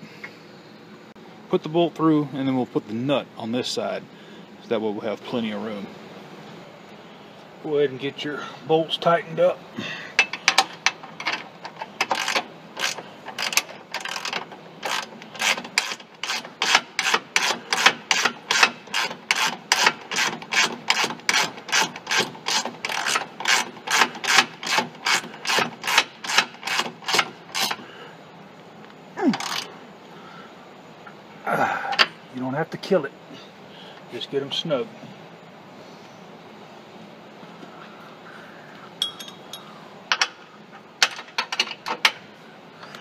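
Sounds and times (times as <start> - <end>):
ratchet wrench clicking: 10.2 - 27.8, 29.3 - 29.7.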